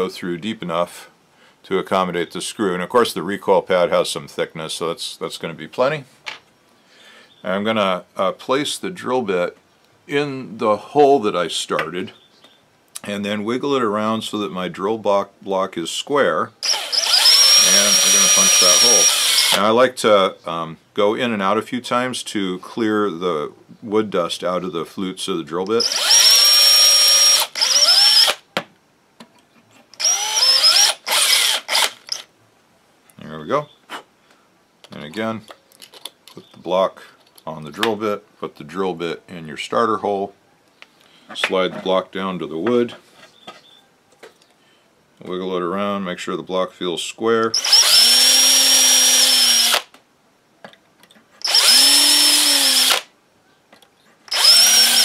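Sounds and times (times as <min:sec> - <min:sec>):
cordless drill boring into wood: 0:16.6 - 0:19.7, 0:25.8 - 0:28.4, 0:30.0 - 0:32.3, 0:47.6 - 0:49.9, 0:51.4 - 0:53.1, 0:54.3 - 0:55.0.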